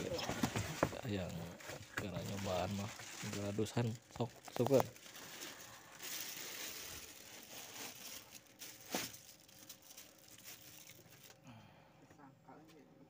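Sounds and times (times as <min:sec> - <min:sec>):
plastic and cardboard crinkling: 0:00.0 - 0:11.4.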